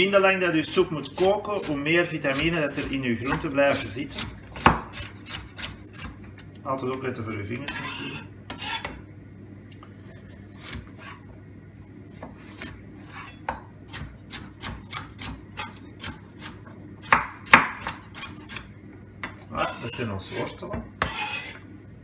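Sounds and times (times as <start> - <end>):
knife chopping on wooden board: 1.2 - 6.2, 12.1 - 21.6.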